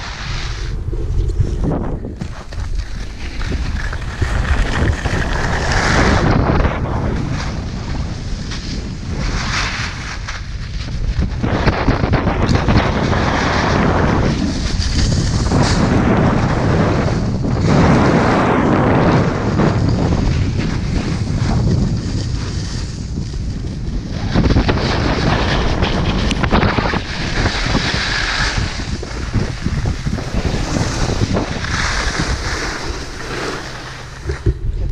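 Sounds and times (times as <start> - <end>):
sliding over packed snow: 0.0 - 34.9
wind on microphone: 0.0 - 34.9.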